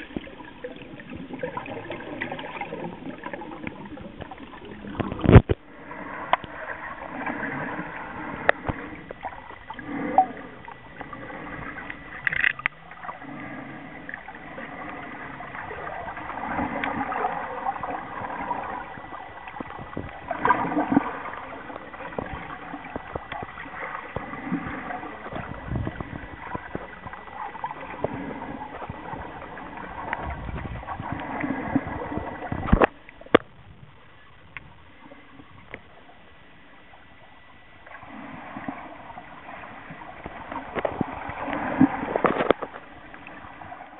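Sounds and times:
underwater sloshing and bubbling: 0.0s - 43.9s.

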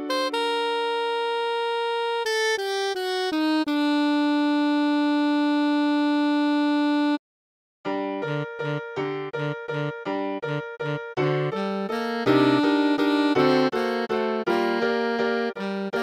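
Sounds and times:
synthesized slow melody: 0.0s - 7.2s, 8.3s - 16.0s.

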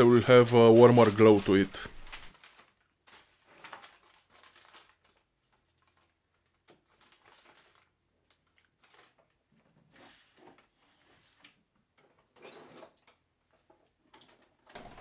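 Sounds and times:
foil sheet crinkling: 0.0s - 9.4s.

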